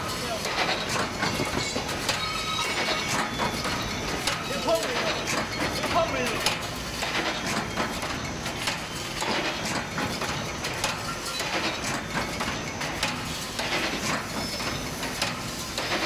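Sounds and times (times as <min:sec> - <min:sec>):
mechanical clatter: 0:00.0 - 0:16.0
fence machine clacking: 0:00.2 - 0:07.9.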